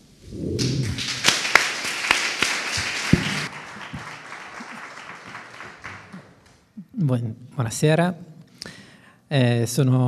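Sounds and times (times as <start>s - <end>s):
audience applauding: 0.6s - 6.7s.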